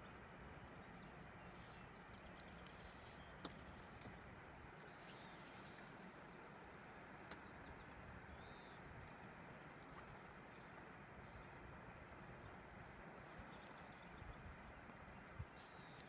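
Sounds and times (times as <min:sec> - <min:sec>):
low hiss of river ambience: 0:00.0 - 0:16.0
faint ticks: 0:01.7 - 0:04.2, 0:15.6 - 0:16.0.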